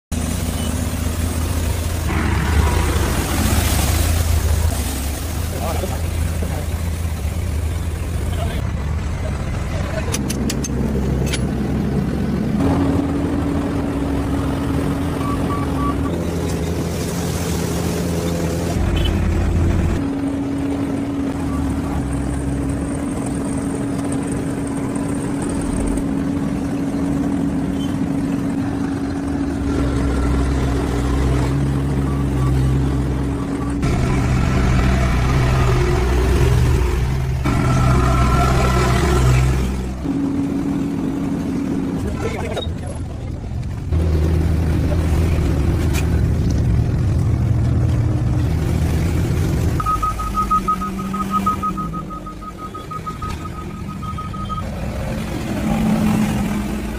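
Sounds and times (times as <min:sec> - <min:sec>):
asphalt paver engine humming: 0:00.1 - 0:56.9
rapid high electronic beeping: 0:49.8 - 0:54.8.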